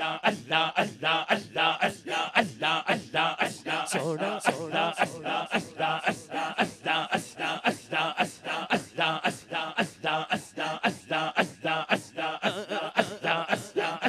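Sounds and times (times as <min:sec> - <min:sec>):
man chanting through pa: 0:02.2 - 0:07.3.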